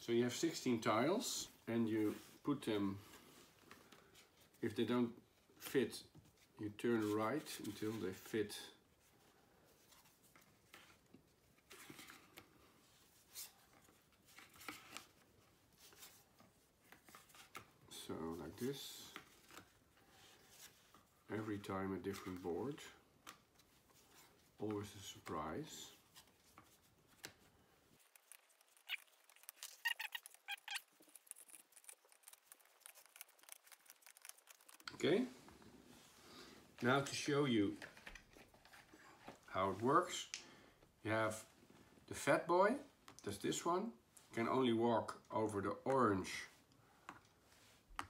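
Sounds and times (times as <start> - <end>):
short squeaks: 28.7 - 31.0.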